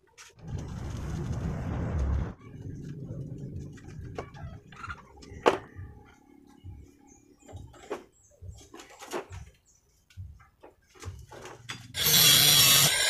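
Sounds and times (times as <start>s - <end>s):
rushing noise: 0.4s - 4.3s.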